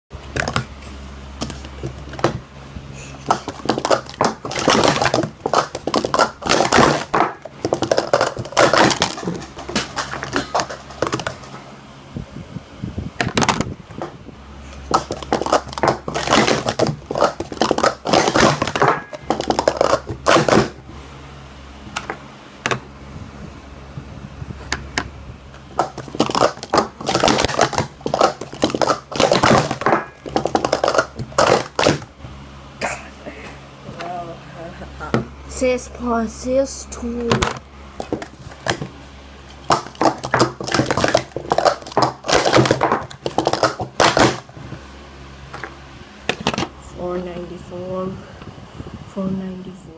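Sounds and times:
plastic cups clattering: 3.2s - 11.6s, 14.8s - 20.8s, 25.7s - 32.1s, 39.6s - 44.5s.

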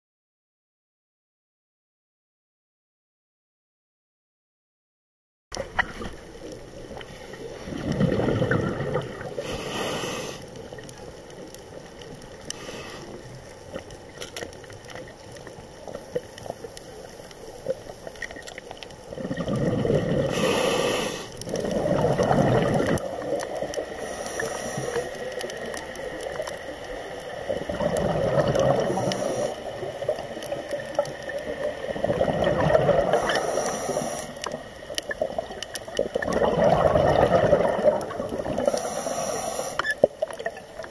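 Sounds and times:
exhaled bubbles gurgling underwater: 5.6s - 40.9s
air hissing: 9.4s - 10.5s, 20.3s - 21.4s, 33.2s - 34.4s, 38.6s - 39.8s.

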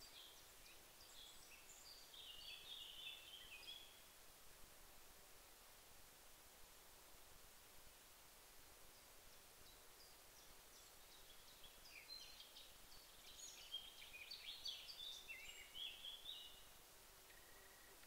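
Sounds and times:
faint bird chirping: 0.0s - 4.2s, 8.8s - 18.0s
steady hiss: 0.0s - 18.0s.

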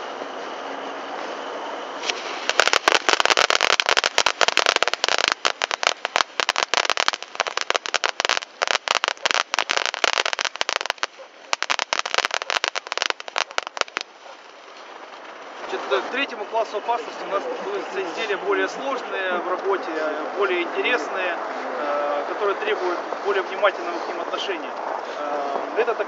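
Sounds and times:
firework crackling: 1.9s - 15.8s.

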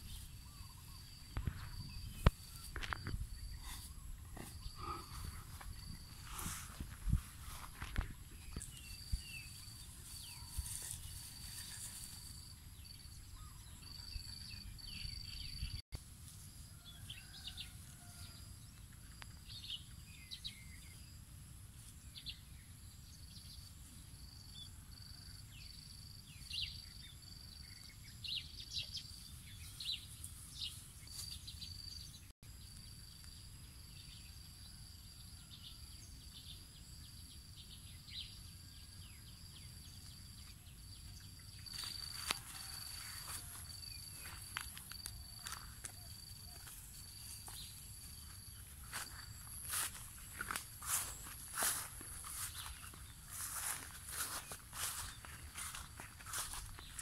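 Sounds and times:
bird chirps: 0.0s - 6.2s.

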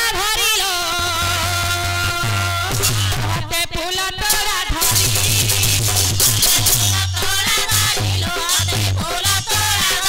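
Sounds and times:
two-headed drum beating: 2.1s - 3.5s, 4.8s - 10.0s.

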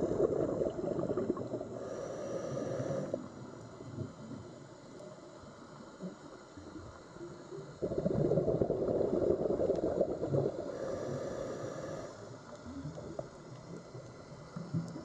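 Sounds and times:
underwater breath bubbles gurgling: 0.0s - 4.6s, 6.0s - 15.0s.

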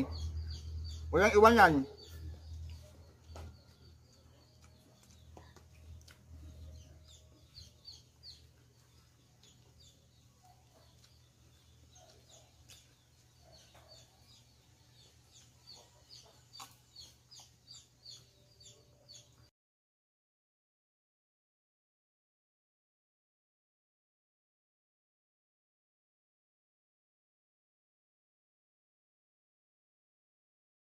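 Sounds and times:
chickens chirping: 0.0s - 19.5s.

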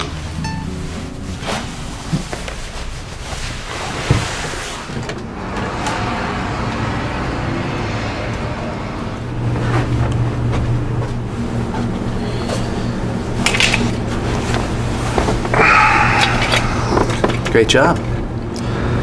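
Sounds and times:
low hum: 0.0s - 19.0s
passing traffic rushing: 3.8s - 10.2s.

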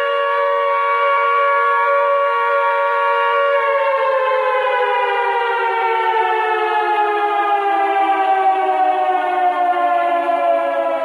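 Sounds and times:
two-tone warning siren: 0.0s - 11.0s.

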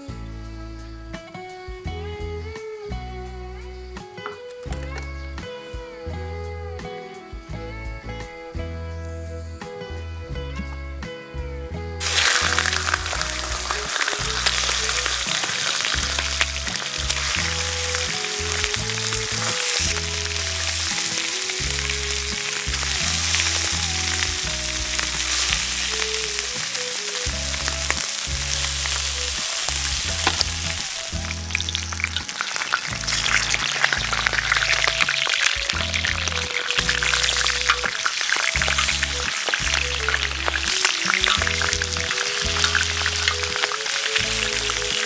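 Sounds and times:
meat sizzling in hot oil: 12.0s - 45.0s.

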